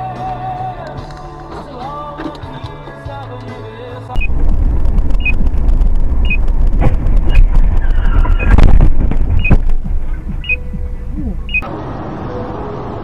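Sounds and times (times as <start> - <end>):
road and engine rumble: 0.0 - 13.0
short electronic beeps: 5.2 - 5.4, 6.2 - 6.4, 7.3 - 7.5, 8.2 - 8.6, 9.4 - 9.6, 10.3 - 11.6.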